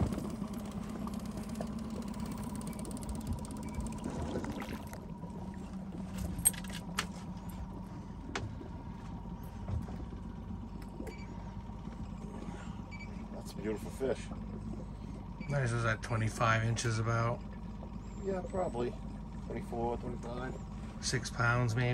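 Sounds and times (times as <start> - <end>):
outboard motor idling: 0.0 - 21.9.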